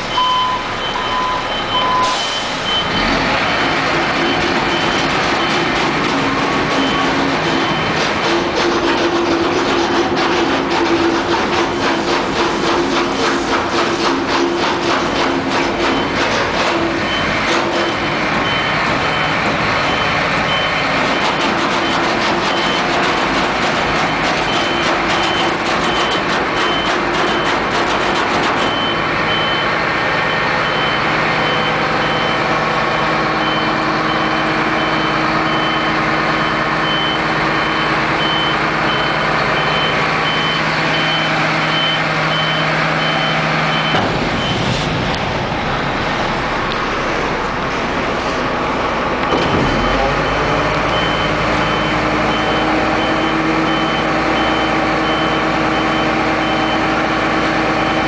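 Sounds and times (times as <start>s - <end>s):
diesel truck engine running: 0.0s - 58.0s
repeating high warning beep: 0.1s - 3.2s, 30.3s - 32.5s, 33.4s - 44.7s, 49.3s - 56.9s.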